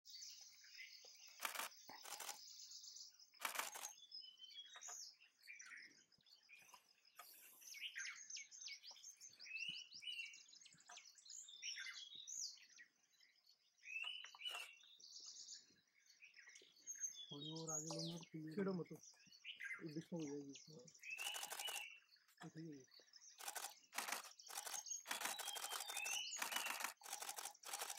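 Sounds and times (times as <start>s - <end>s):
small birds chirping: 0.1s - 27.9s
sharp clicking bursts: 1.4s - 2.4s, 3.4s - 4.0s, 21.2s - 21.9s, 23.4s - 27.9s.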